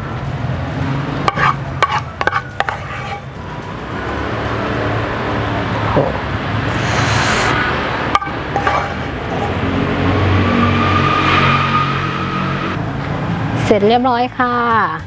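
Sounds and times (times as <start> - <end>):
road traffic rumble: 0.0 - 15.0
wooden spatula scraping a frying pan: 1.3 - 3.3, 8.1 - 9.7.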